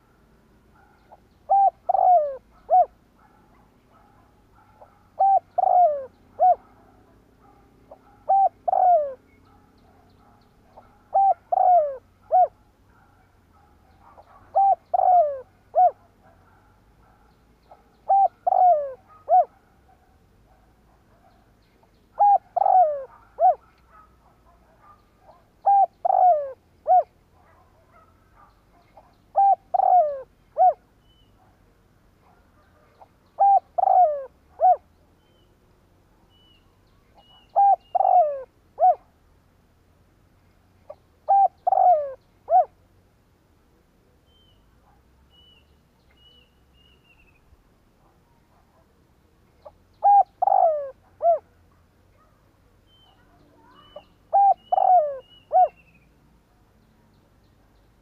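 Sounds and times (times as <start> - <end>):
dove cooing: 0.8 - 19.6, 22.2 - 30.8, 32.7 - 34.9, 37.2 - 39.1, 40.9 - 42.8, 50.0 - 51.5, 53.0 - 55.8.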